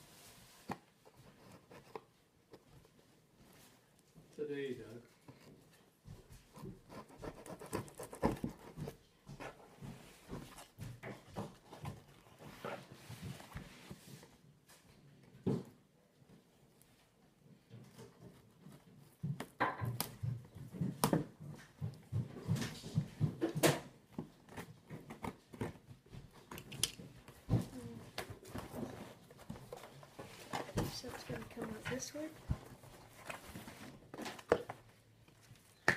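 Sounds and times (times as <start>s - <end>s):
cardboard box being handled: 6.4s - 14.4s, 27.5s - 34.9s
scissors cutting cardboard: 6.5s - 9.7s, 24.1s - 27.0s.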